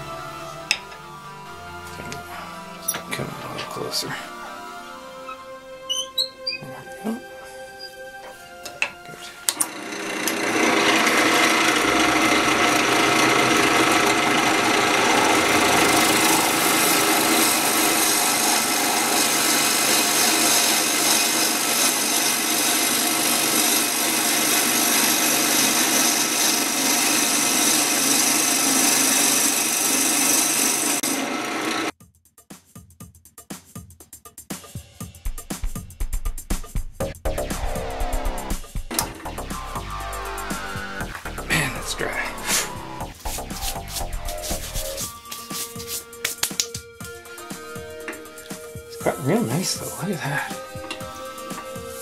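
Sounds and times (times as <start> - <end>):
lathe tool rasping wood: 1.9 - 4.4, 9.1 - 31.9, 37.6 - 46.0
faint music with a beat: 43.1 - 52.0.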